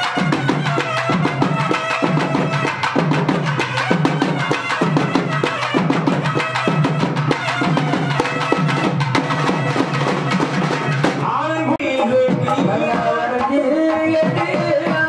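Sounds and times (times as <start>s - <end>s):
wind pipe melody: 0.0s - 11.2s
frame drums beaten fast: 0.0s - 15.0s.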